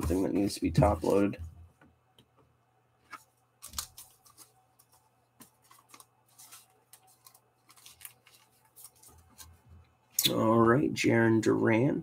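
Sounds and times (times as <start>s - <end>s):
trading cards rustling and clicking: 3.1s - 9.6s.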